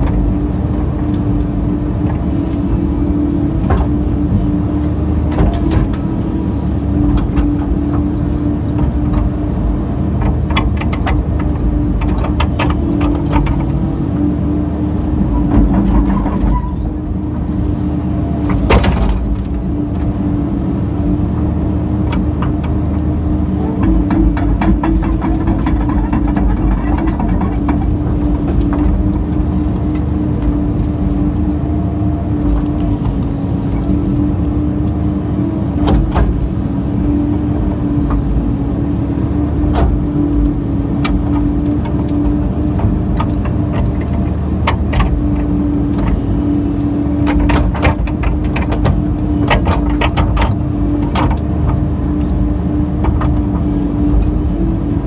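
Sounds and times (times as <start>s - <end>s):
excavator running under load: 0.0s - 55.0s
knocks and scrapes: 23.8s - 34.0s.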